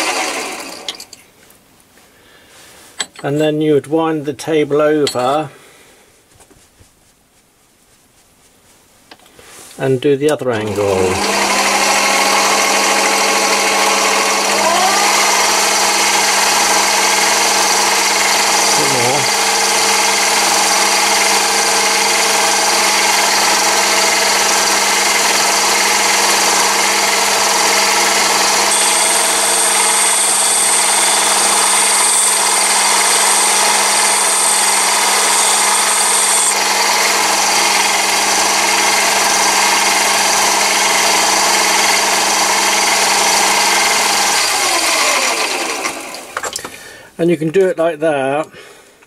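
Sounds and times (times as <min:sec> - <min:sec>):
lathe motor humming: 0:00.0 - 0:01.1, 0:10.6 - 0:46.7
lathe winding down: 0:00.0 - 0:01.1, 0:10.6 - 0:46.7
high whine of tool on lap: 0:10.6 - 0:46.4.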